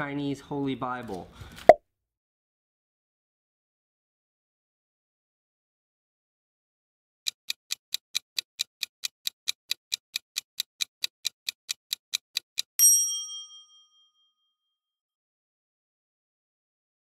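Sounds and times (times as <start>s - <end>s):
rapid clock ticking: 7.3s - 12.8s
bright bell ding: 12.8s - 14.5s.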